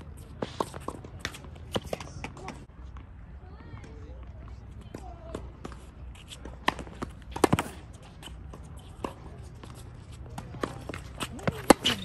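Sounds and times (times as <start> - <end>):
faint footsteps on hard court: 0.0 - 12.0
tennis balls struck by rackets: 4.8 - 12.0.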